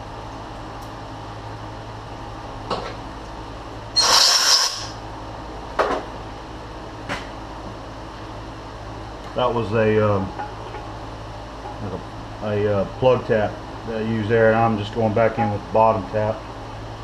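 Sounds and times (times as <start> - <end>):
steady low hum: 0.0 - 17.0
compressed air blow gun hissing: 4.0 - 5.0.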